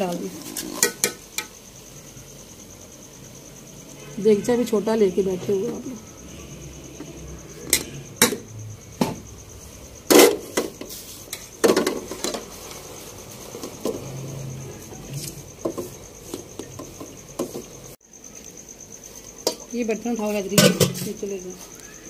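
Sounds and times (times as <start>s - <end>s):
metal pots knocking and scraping: 0.0s - 1.6s, 6.9s - 9.4s, 10.0s - 17.9s, 19.2s - 21.3s
cricket chirping: 0.0s - 22.0s.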